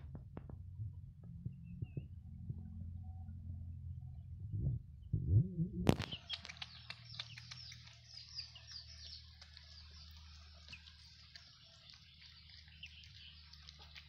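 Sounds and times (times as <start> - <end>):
low rumbling: 0.0 - 10.3
birds chirping: 5.9 - 14.0.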